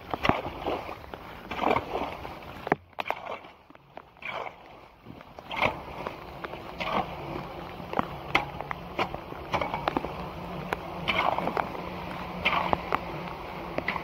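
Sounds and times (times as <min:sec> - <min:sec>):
leaves scraped through water: 0:00.0 - 0:14.0
steady low hum: 0:00.0 - 0:14.0
water splashing: 0:00.0 - 0:14.0
sharp clicks and knocks: 0:05.1 - 0:14.0.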